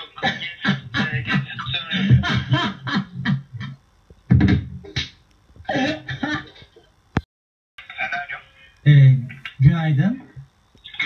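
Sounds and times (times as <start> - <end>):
man laughing hard: 0.2 - 3.8, 5.7 - 6.8.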